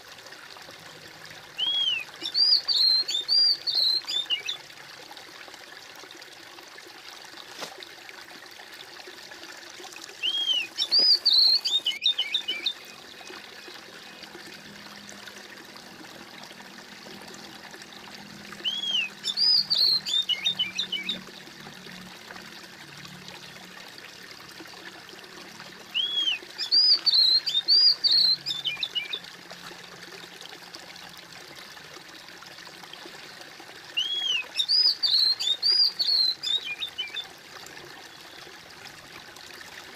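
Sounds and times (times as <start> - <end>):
stream trickling and splashing: 0.0 - 39.9
songbird chirping: 1.6 - 4.6, 10.2 - 13.3, 18.6 - 21.3, 26.0 - 29.2, 34.0 - 37.2.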